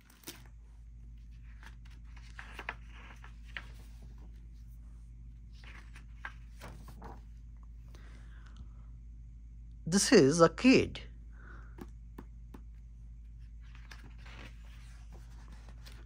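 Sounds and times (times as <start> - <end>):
book pages turning: 0.0 - 7.5, 12.2 - 16.0
faint steady hum: 0.0 - 16.0.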